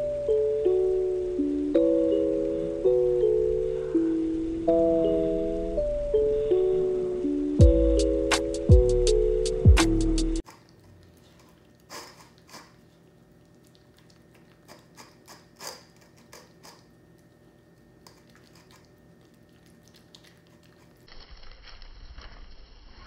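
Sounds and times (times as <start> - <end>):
steady background hiss: 0.0 - 8.7
puppy crunching dry kibble: 10.4 - 22.4.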